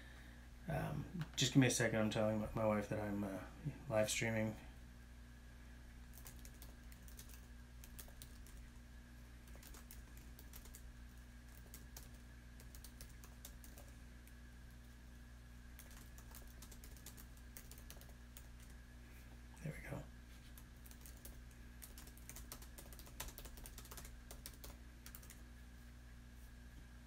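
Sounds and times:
steady low hum: 0.0 - 27.0
keyboard typing clicks: 6.2 - 8.6, 9.5 - 10.8, 15.8 - 18.8, 20.8 - 25.4.

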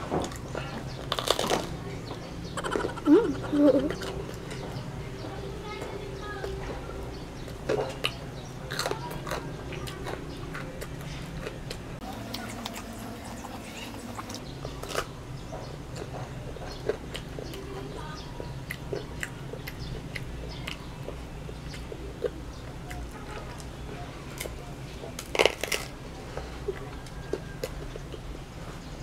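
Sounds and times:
person chewing crunchy food: 0.2 - 1.8, 7.4 - 17.7, 18.4 - 28.4
mouth clicks: 2.6 - 4.2.

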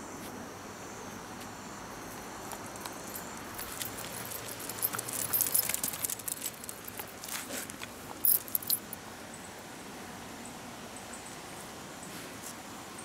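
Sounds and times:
light clicks and jingles: 2.4 - 9.0.

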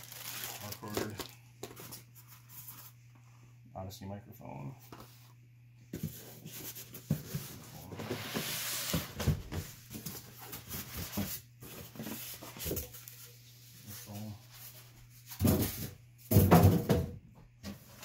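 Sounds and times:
cardboard rubbing and scraping: 6.0 - 9.3.

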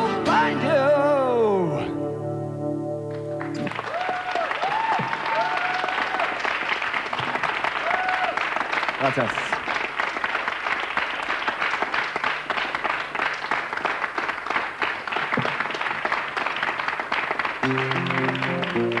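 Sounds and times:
guitar sustained notes: 0.0 - 3.8, 17.6 - 19.0
audience applauding: 3.1 - 19.0.

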